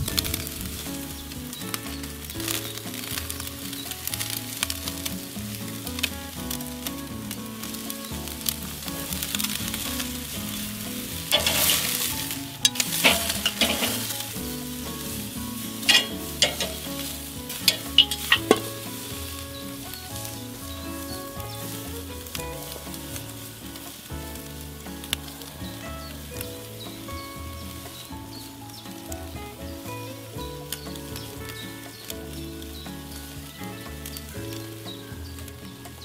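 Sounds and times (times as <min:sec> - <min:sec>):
steaks sizzling on a grill: 0:00.0 - 0:36.0
metal tongs clicking on grate: 0:11.3 - 0:12.0, 0:12.7 - 0:14.2, 0:15.9 - 0:18.7.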